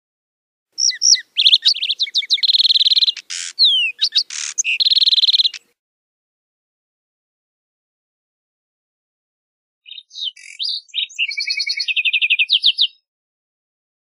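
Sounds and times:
sparrow singing: 0.8 - 5.7, 9.9 - 13.1.

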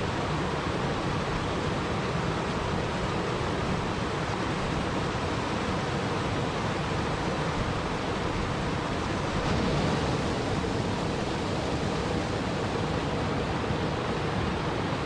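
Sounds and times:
waterfall rushing: 0.0 - 15.0.

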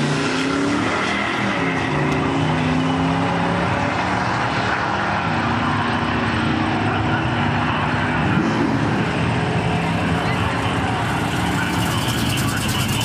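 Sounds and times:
track noise: 0.4 - 13.0
car engine running: 7.7 - 13.0.

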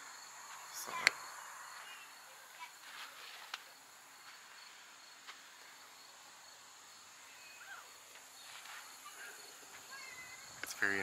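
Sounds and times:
insect drone: 0.0 - 11.0
faint bird chirps: 7.2 - 10.5.

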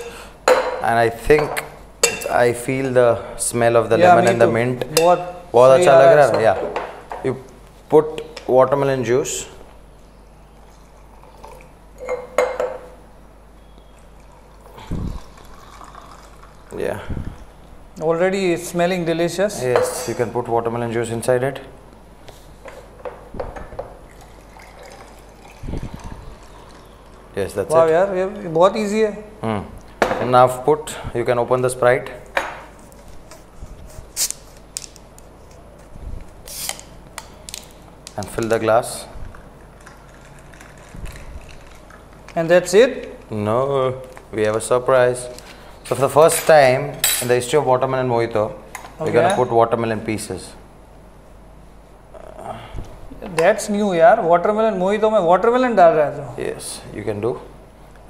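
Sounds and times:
glass clinking: 1.4 - 2.4, 12.0 - 12.9
carbonation hissing: 13.8 - 17.7, 24.0 - 28.2, 36.4 - 37.0
juice pouring over ice: 14.2 - 17.0, 24.1 - 27.4.

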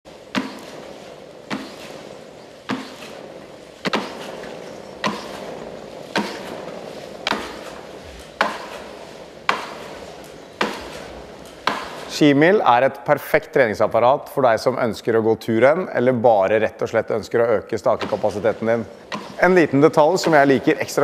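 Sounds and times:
treadmill belts rushing: 0.1 - 12.2, 17.8 - 21.0
sharp knock of ski strokes: 0.3 - 12.2, 18.0 - 20.9.

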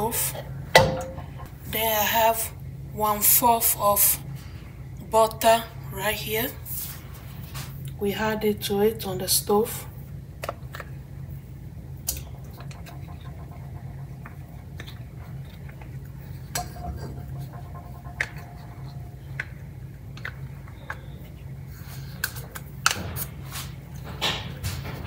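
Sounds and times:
steady low hum: 0.0 - 25.0
utensils knocking on saucepan: 0.8 - 1.5, 16.6 - 19.3.

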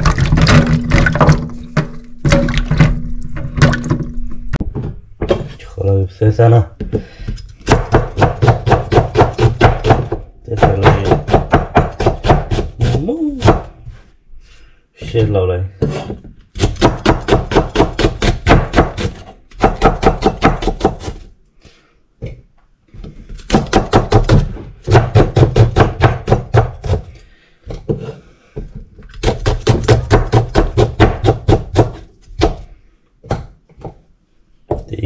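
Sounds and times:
knife chopping on wooden board: 7.6 - 13.7, 15.8 - 21.3, 23.4 - 27.1, 29.2 - 32.7.

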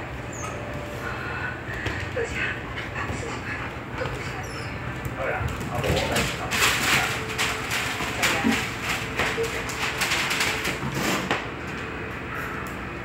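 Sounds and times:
claws clicking on tiled floor: 4.1 - 11.0
newspaper rustling: 5.7 - 11.3.

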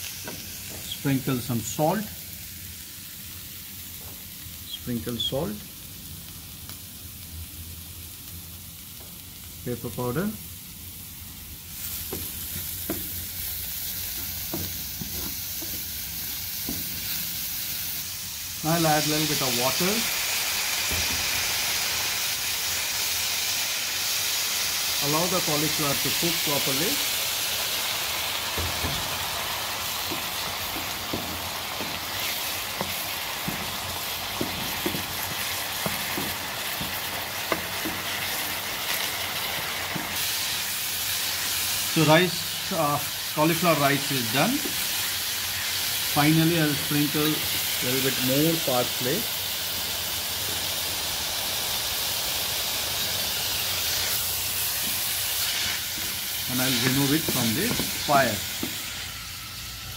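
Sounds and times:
food sizzling in oil: 0.0 - 59.9
wooden spoon scraping a pan: 28.7 - 40.2.

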